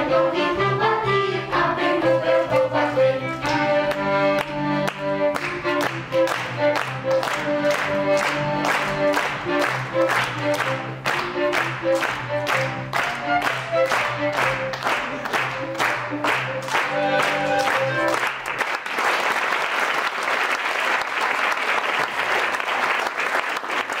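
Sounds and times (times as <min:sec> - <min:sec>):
folk band with violins and bass: 0:00.0 - 0:18.6
sharp claps on the beat: 0:03.4 - 0:24.0
audience applause: 0:03.9 - 0:24.0.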